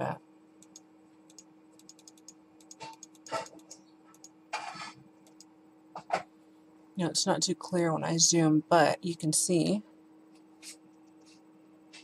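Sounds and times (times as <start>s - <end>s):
steady low hum: 0.0s - 12.0s
faint scattered clicks: 0.6s - 4.3s.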